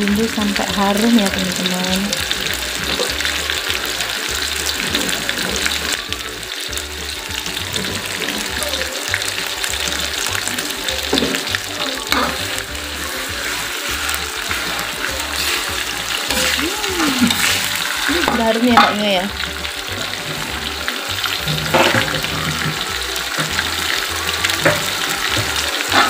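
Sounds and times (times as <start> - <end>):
spice paste sizzling in hot oil: 0.0 - 26.0
metal spatula scraping wok: 10.5 - 23.7.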